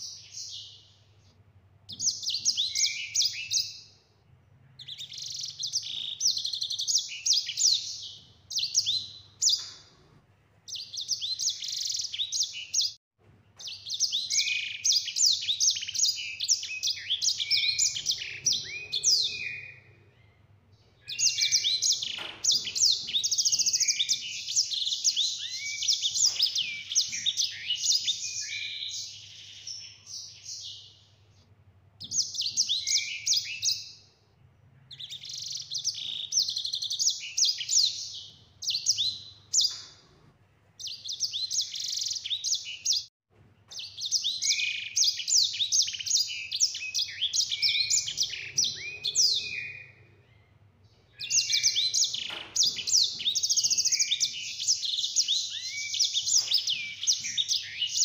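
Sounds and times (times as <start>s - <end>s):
bird singing trilling runs: 43.8s - 50.1s.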